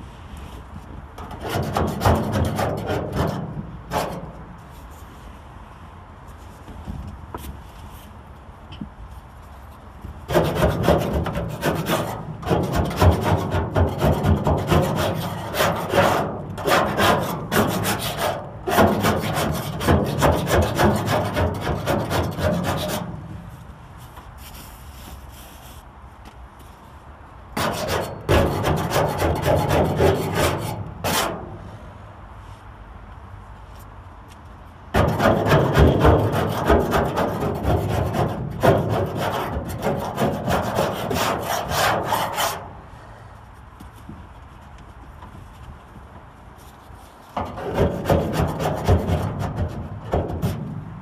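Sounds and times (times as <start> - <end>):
hand scraper scraping steel panel: 1.2 - 4.5, 10.2 - 23.6, 27.6 - 31.7, 34.9 - 42.8, 46.6 - 50.9.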